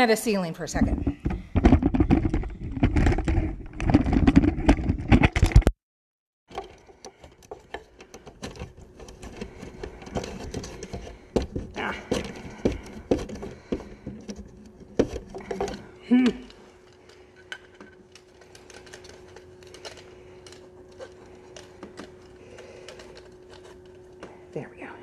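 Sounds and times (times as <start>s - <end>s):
low steady hum: 6.5s - 25.0s.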